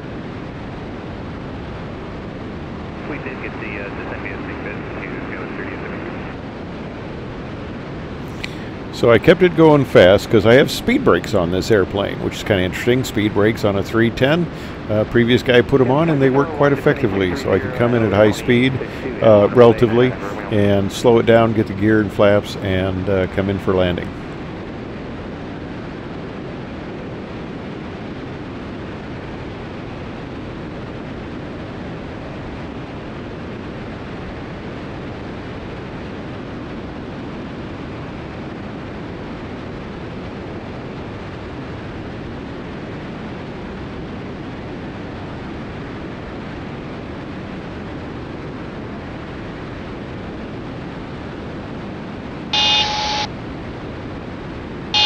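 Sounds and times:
aircraft engines and airflow drone: 0.0 - 55.0
electronic warning tone: 52.5 - 53.3.

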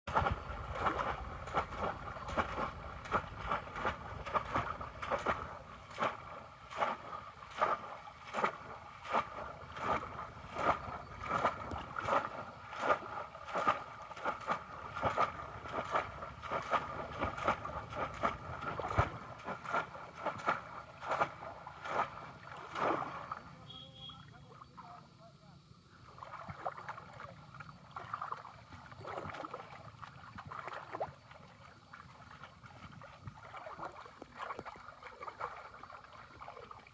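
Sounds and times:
fish traps splashing into water: 0.1 - 24.3, 28.0 - 31.4.

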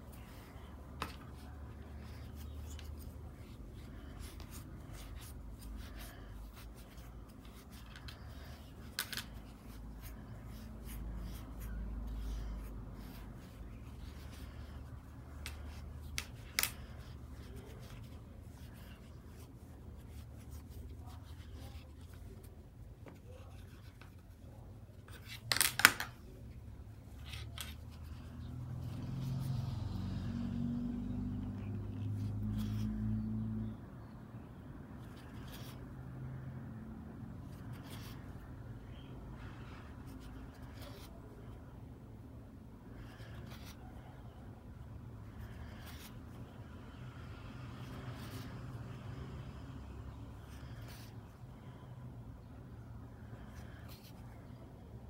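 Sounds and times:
soft rubbing of fibre and yarn: 0.0 - 25.3, 26.2 - 33.7.

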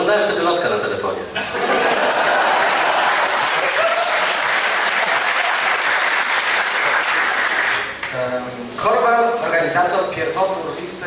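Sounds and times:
audience applauding: 1.8 - 8.1.

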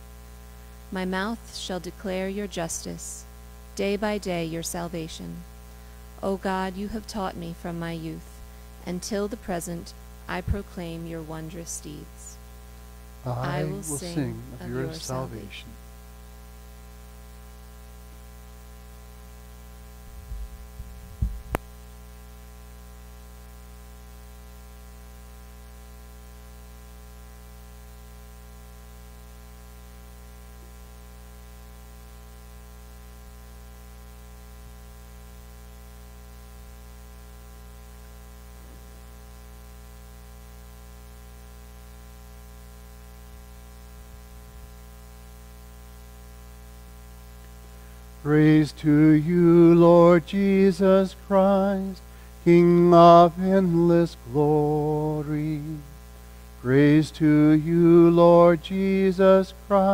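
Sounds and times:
electrical mains hum: 0.0 - 59.9
low thumps: 20.0 - 21.7.

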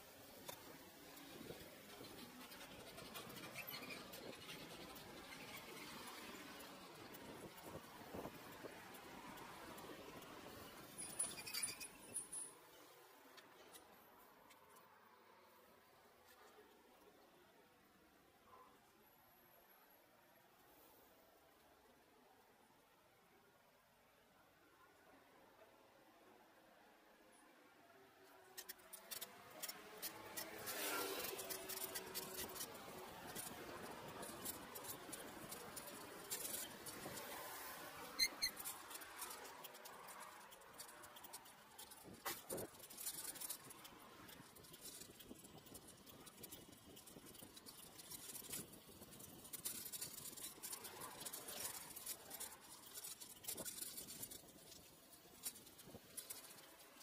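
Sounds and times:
bicycle clicks and rattles: 0.1 - 12.5, 28.3 - 57.0.

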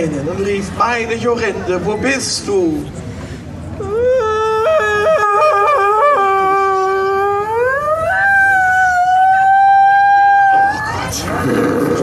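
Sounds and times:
person wailing theatrically: 3.8 - 11.1.

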